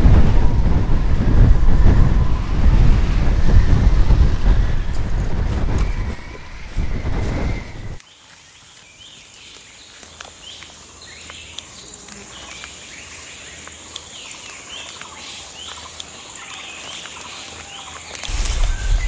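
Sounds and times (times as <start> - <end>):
birds calling: 5.8 - 19.0
loud low rumble: 18.3 - 19.0.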